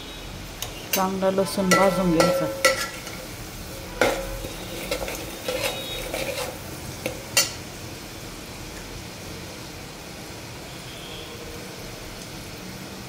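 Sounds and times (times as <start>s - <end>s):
oil sizzling: 0.0s - 13.0s
metal spatula scraping a pot: 1.7s - 7.6s.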